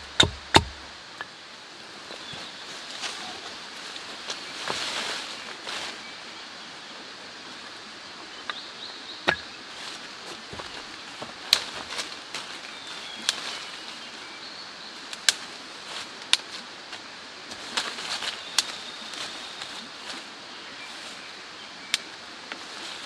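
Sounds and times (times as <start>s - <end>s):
steady background hiss: 0.0s - 23.0s
leafy branches being handled: 2.0s - 6.1s, 9.7s - 14.2s, 15.0s - 21.2s, 21.9s - 23.0s
twigs snapping: 11.4s - 13.6s, 15.1s - 15.5s, 16.2s - 16.6s, 17.5s - 19.3s.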